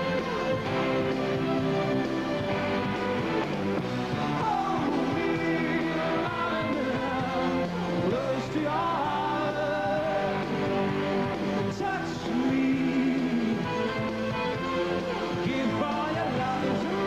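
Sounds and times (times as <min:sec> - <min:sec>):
man singing: 0:04.3 - 0:11.0, 0:11.6 - 0:14.1, 0:15.2 - 0:17.0.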